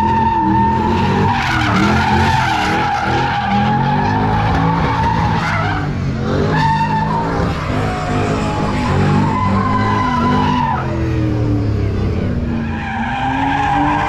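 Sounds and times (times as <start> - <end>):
tyres screeching: 0.0 - 11.1
car engine revving: 0.0 - 14.0.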